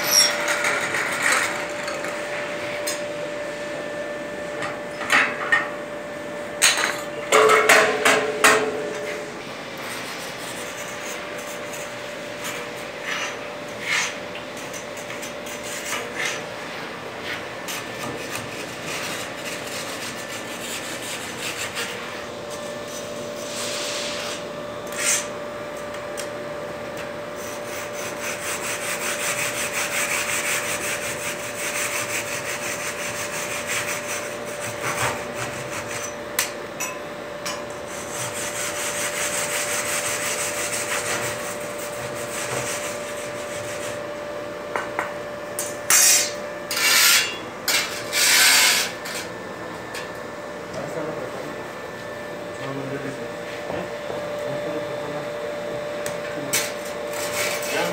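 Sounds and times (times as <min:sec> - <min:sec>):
steel bar scraping metal: 0:00.0 - 0:01.4, 0:45.9 - 0:49.3
shovel blade scraping: 0:45.9 - 0:49.3.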